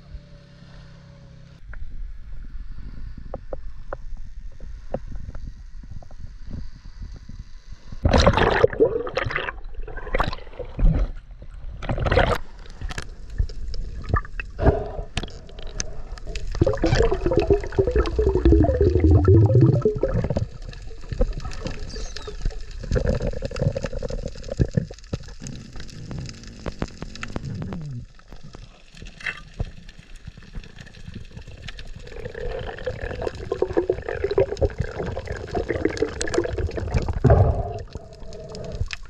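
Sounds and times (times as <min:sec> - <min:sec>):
water sloshing with bubbles: 0:08.0 - 0:39.0
fast crackle of clicks: 0:19.6 - 0:39.0.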